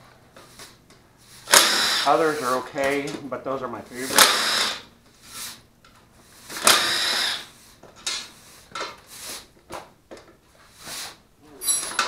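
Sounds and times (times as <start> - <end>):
cordless drill running: 1.4 - 2.5, 4.0 - 4.9, 6.4 - 7.5.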